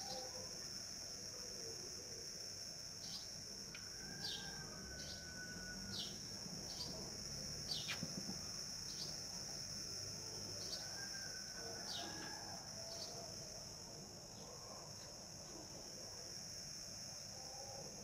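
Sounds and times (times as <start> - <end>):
high-pitched insect drone: 0.0 - 18.0
bird chirping: 7.7 - 8.1.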